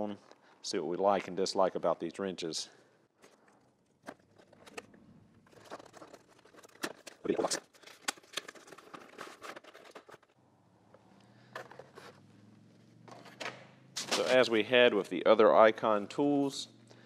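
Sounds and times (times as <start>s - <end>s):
cardboard rustling and scraping: 5.4s - 10.4s, 11.5s - 12.3s.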